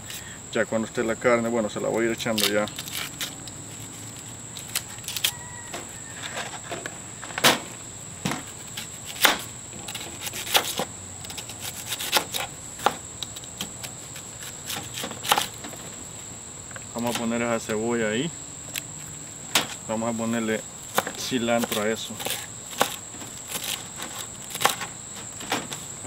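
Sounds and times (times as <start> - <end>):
knife slicing onion on board: 8.3 - 15.6, 20.9 - 24.9.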